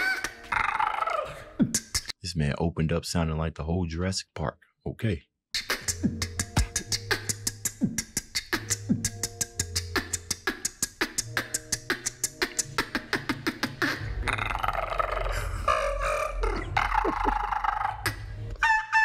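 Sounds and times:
beatboxing: 0:00.0 - 0:02.2, 0:05.5 - 0:15.4, 0:16.1 - 0:19.0.

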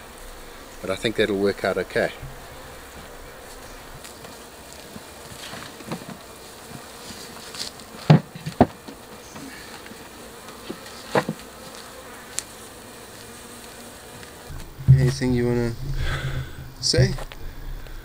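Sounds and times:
bees buzzing: 0:00.0 - 0:18.0
sharp knocks: 0:02.2 - 0:03.1, 0:08.0 - 0:09.0.

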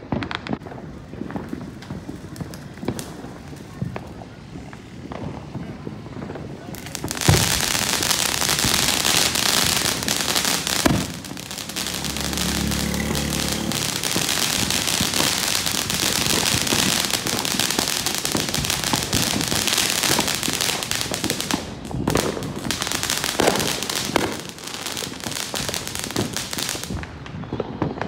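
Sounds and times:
firework fountain crackling hiss: 0:00.0 - 0:28.0.

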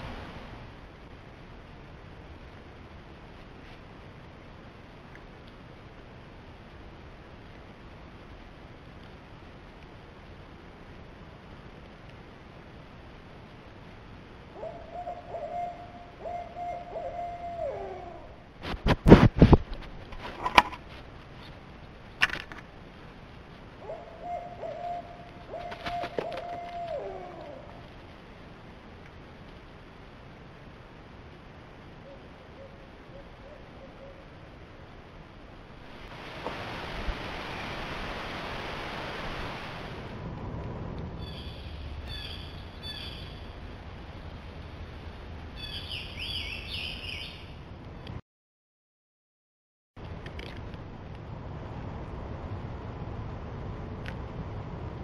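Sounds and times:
steady low rumble: 0:00.0 - 0:14.6, 0:34.3 - 0:45.6, 0:50.0 - 0:55.0
owl hooting: 0:14.5 - 0:18.4, 0:23.8 - 0:27.9, 0:32.0 - 0:34.3, 0:41.2 - 0:43.4, 0:45.6 - 0:47.5
songbird singing: 0:14.6 - 0:18.4, 0:23.8 - 0:27.9, 0:41.2 - 0:43.7, 0:45.5 - 0:47.7.

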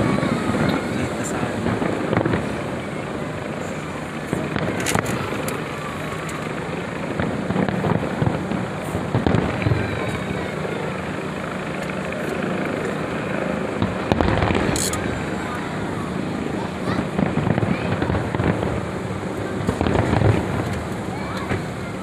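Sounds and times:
distant fireworks booming: 0:00.0 - 0:22.0
sharp firework bangs: 0:01.6 - 0:02.9, 0:07.1 - 0:10.6, 0:13.8 - 0:15.7, 0:16.6 - 0:21.8.

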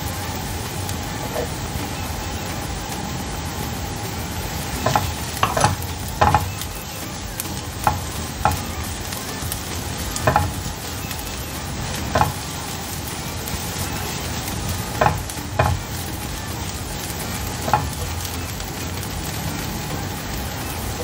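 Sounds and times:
garlic sizzling in a frying pan: 0:00.0 - 0:21.0
spatula scraping a pan: 0:04.7 - 0:06.7, 0:09.8 - 0:16.4, 0:17.0 - 0:18.4.

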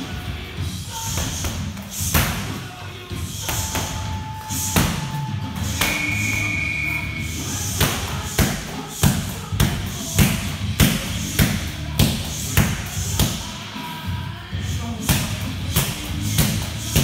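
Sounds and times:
kicks smacking pads: 0:07.8 - 0:13.4.

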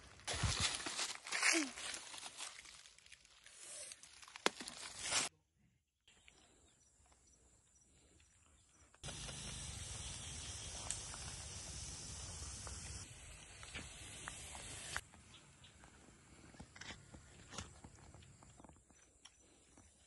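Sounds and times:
dry leaves rustling: 0:00.0 - 0:05.3.

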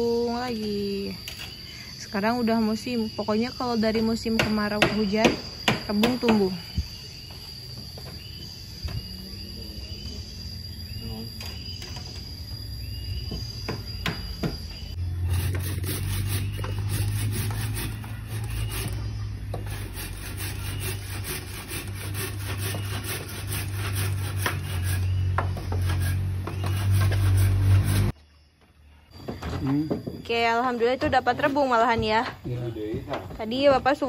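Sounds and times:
bamboo scraping: 0:15.0 - 0:28.2.

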